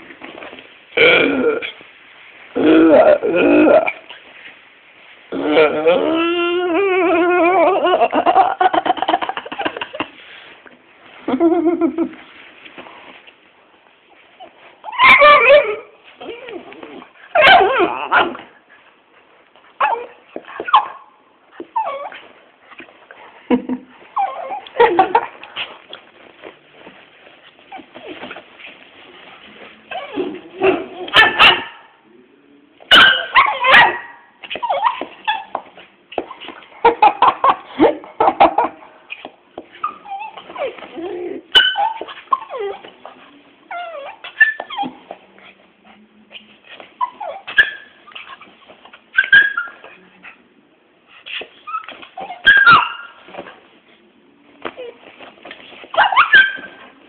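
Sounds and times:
dog whining and yelping: 0:02.6 - 0:04.2, 0:05.3 - 0:08.4, 0:14.4 - 0:18.6, 0:19.8 - 0:22.9, 0:24.0 - 0:25.8, 0:29.9 - 0:31.9, 0:32.9 - 0:37.6, 0:38.2 - 0:45.5, 0:46.3 - 0:50.4, 0:51.2 - 0:53.5, 0:54.6 - 0:57.0
dogs barking and yipping: 0:14.9 - 0:16.4, 0:17.3 - 0:18.5, 0:30.0 - 0:31.9, 0:32.9 - 0:38.8, 0:41.4 - 0:43.0, 0:47.0 - 0:50.0, 0:51.6 - 0:53.4, 0:55.7 - 0:57.0.

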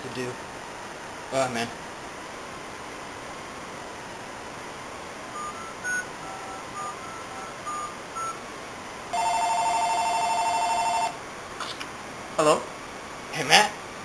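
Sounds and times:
phone keypad tones: 0:05.4 - 0:08.4, 0:09.2 - 0:11.2
phone ringing tone: 0:05.4 - 0:08.4, 0:09.1 - 0:11.2.

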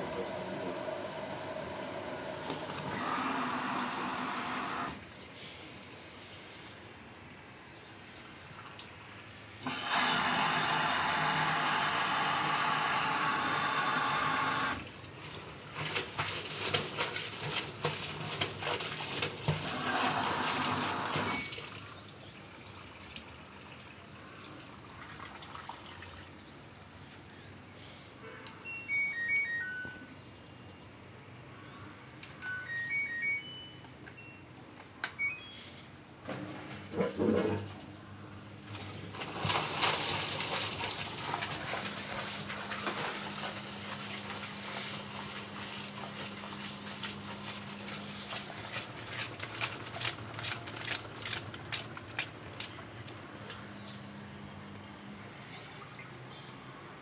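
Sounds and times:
water rushing into washer: 0:00.0 - 0:05.2, 0:08.4 - 0:26.4, 0:38.6 - 0:52.7
short electronic beeps: 0:28.6 - 0:30.2, 0:32.4 - 0:34.6, 0:35.2 - 0:35.8.

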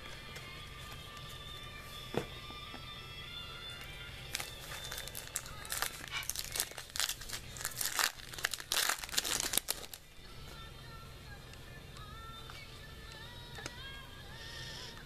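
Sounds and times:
foil wrapper tearing and crinkling: 0:04.3 - 0:10.0.

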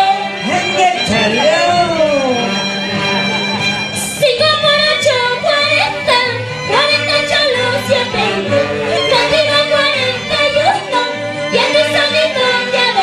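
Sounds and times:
live band with saxophones: 0:00.0 - 0:13.0
repeating bass line: 0:00.5 - 0:03.9
woman singing into microphone: 0:04.0 - 0:13.0.

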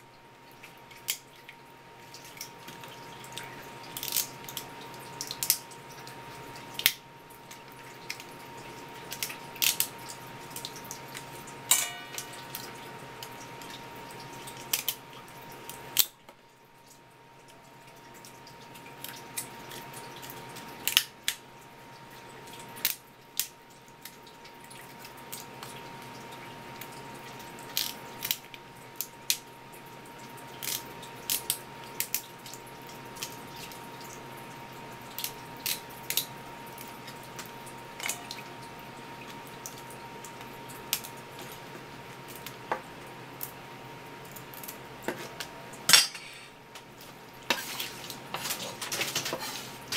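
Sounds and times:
scissors snipping crab shell: 0:04.0 - 0:04.7.

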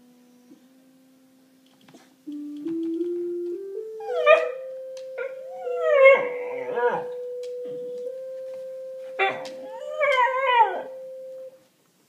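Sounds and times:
electric keyboard notes: 0:00.0 - 0:11.6
dog howling: 0:04.0 - 0:04.6, 0:05.2 - 0:07.2, 0:09.2 - 0:10.9.

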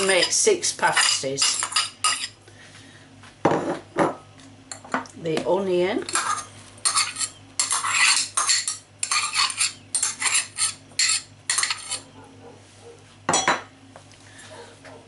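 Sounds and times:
metal spoon scraping a bowl: 0:00.0 - 0:02.4, 0:06.1 - 0:12.2.

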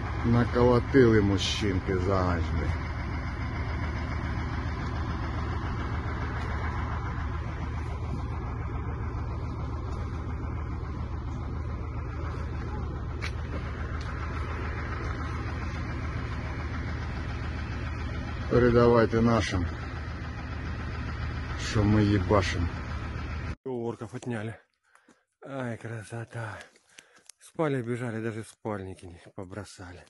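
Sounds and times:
engine idling: 0:00.0 - 0:23.6.

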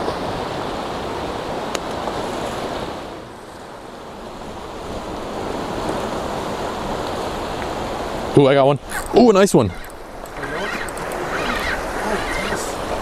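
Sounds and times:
ocean surf washing against rocks: 0:00.0 - 0:13.0.

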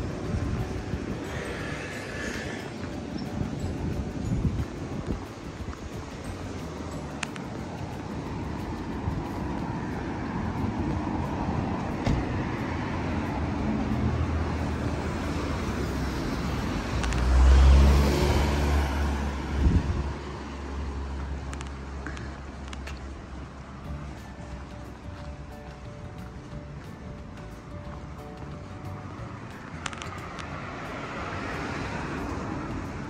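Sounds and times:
car driving past: 0:09.5 - 0:22.6.

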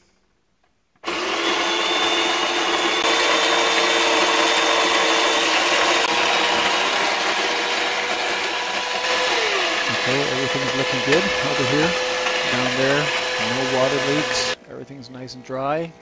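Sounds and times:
coffee grinder grinding beans: 0:01.0 - 0:14.6.

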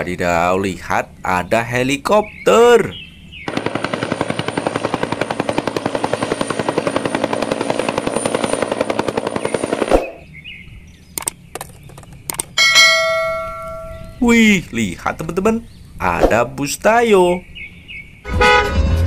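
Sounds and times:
helicopter rotor beating: 0:03.5 - 0:10.3.

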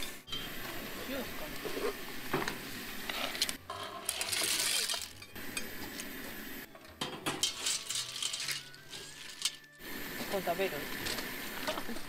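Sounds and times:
shells and metal pots clinking: 0:03.2 - 0:09.8.

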